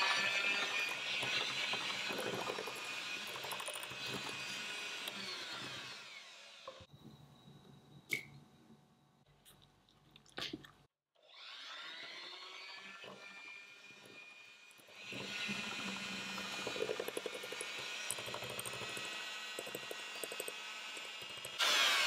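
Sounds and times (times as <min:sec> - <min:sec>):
electric hand mixer whine: 0:00.0 - 0:06.9, 0:11.3 - 0:22.0.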